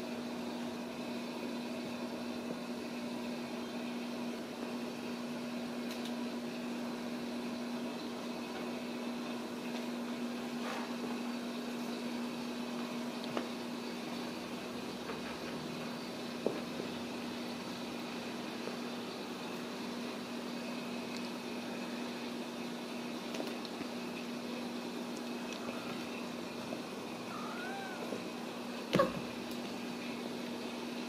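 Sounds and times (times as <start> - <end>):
steady mechanical hum: 0.0 - 31.0.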